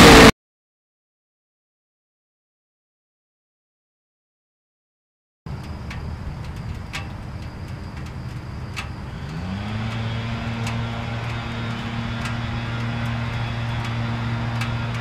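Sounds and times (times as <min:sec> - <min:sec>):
motorcycle engine running: 0:05.5 - 0:15.0
faint sharp clicks: 0:05.6 - 0:15.0.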